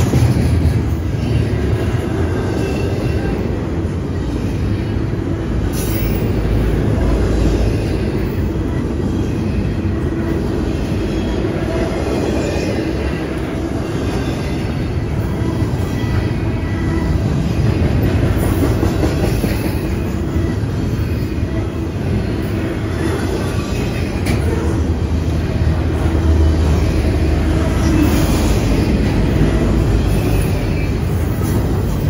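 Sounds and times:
sharp clacks of train wheels: 0.0s - 3.4s, 17.0s - 21.2s
freight train wheels rumbling on rails: 0.0s - 32.0s.

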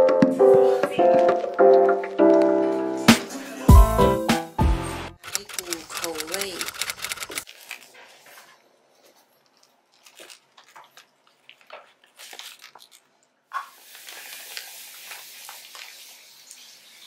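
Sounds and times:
paper wrapper crackling: 5.2s - 8.0s, 9.6s - 13.3s
chewing a toasted sandwich: 9.4s - 15.9s.

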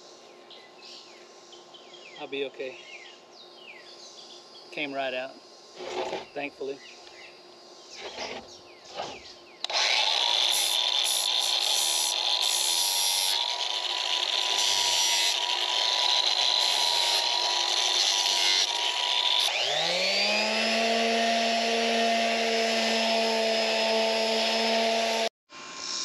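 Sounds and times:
angle grinder sanding plywood: 5.8s - 6.3s, 8.0s - 25.3s
electric palm sander whine: 8.0s - 26.0s.

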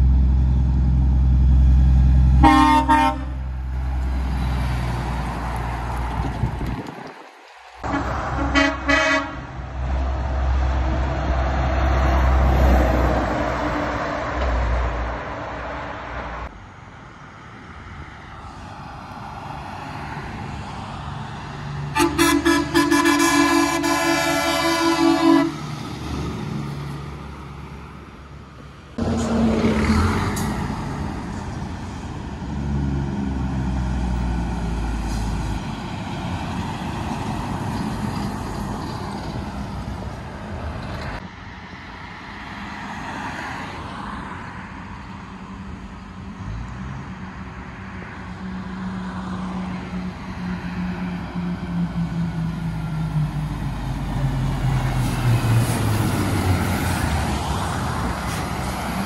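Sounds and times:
heavy traffic passing: 0.0s - 59.0s
brief horn toot: 2.4s - 3.4s, 7.8s - 9.4s, 22.0s - 25.6s
truck air horn blast: 2.4s - 3.4s, 7.8s - 9.5s, 21.9s - 25.7s.

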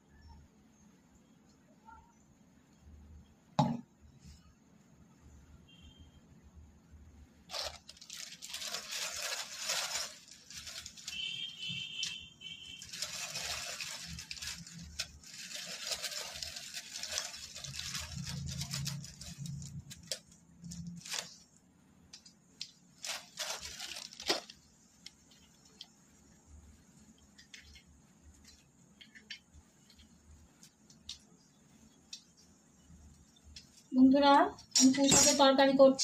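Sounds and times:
leaf sizzling in hot oil: 7.5s - 21.4s, 22.6s - 34.3s
oil crackling and popping: 7.5s - 33.9s.

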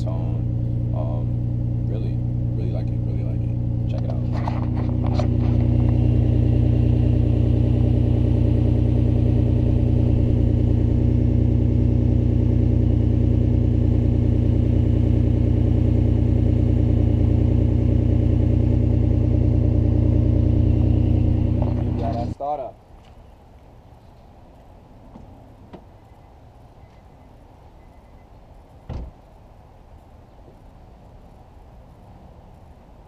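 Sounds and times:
car engine idling: 0.0s - 22.5s.

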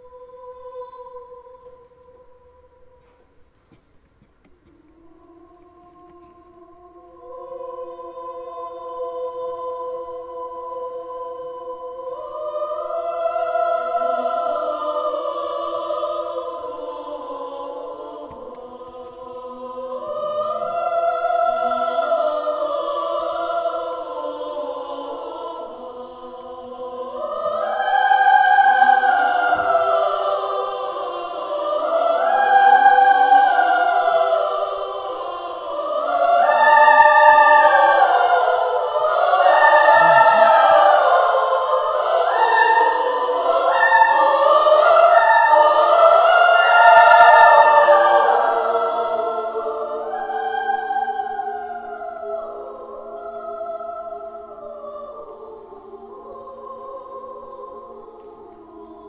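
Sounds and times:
women's choir singing: 0.0s - 3.8s, 4.7s - 59.0s.

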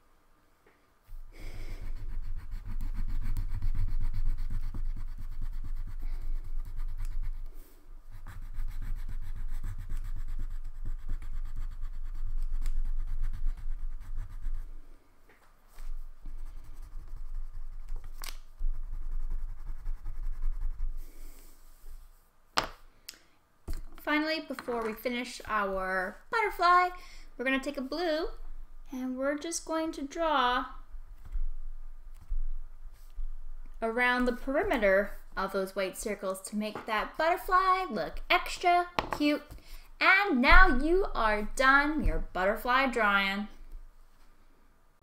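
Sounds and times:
crayon scribbling on paper: 1.6s - 14.7s, 16.4s - 21.0s.

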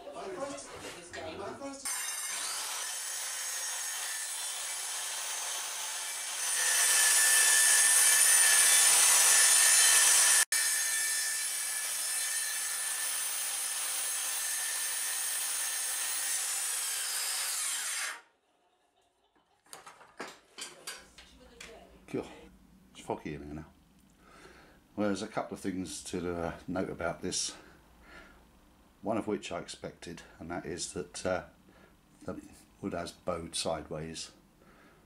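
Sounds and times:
circular saw cutting wood: 1.9s - 18.3s.

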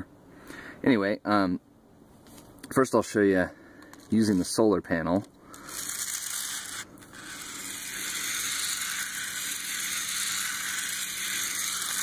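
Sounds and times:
toy motor whirring: 5.5s - 12.0s.

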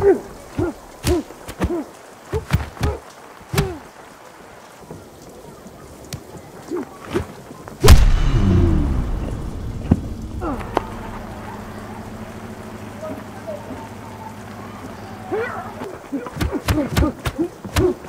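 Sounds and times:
men grunting and shouting: 0.0s - 3.8s, 10.3s - 14.4s
heavy impact with low rumble: 7.8s - 13.0s.

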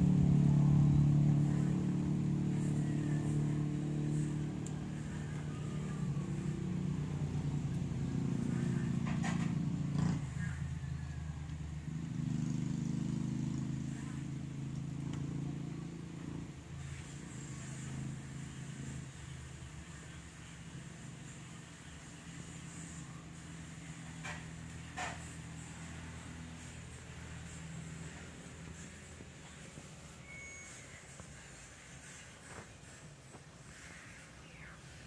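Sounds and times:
low motor hum: 0.0s - 31.6s.

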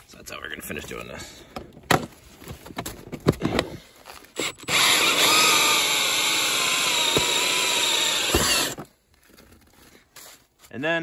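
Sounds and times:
cordless drill boring through wall: 4.4s - 8.8s.

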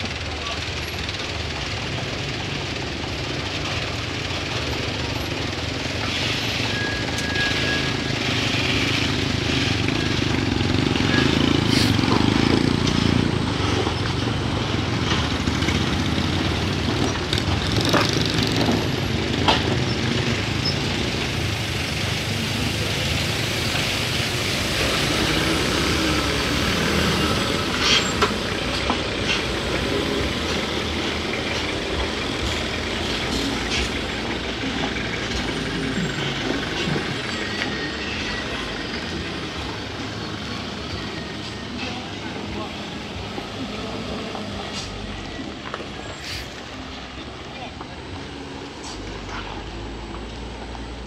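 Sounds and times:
dump truck diesel engines labouring: 0.0s - 51.0s.

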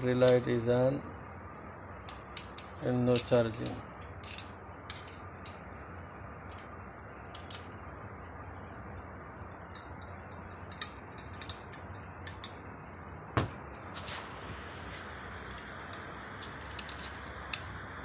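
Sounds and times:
steady low hum: 0.0s - 18.0s
metal clicks and taps of tools: 2.0s - 5.6s, 9.7s - 12.6s.

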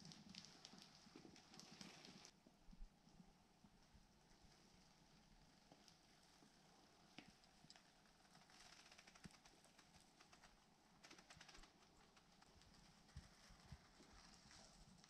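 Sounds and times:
scratchy rustling: 7.5s - 15.0s.

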